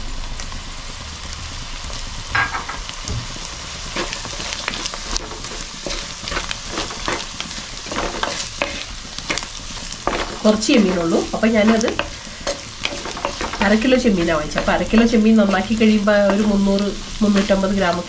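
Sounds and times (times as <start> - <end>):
food sizzling in a pot: 0.0 - 18.0
wooden spatula stirring and scraping: 3.9 - 18.0.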